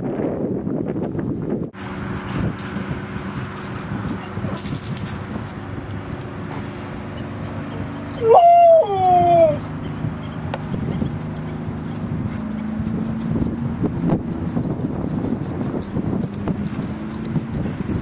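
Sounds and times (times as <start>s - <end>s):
dog whining: 7.6s - 10.4s.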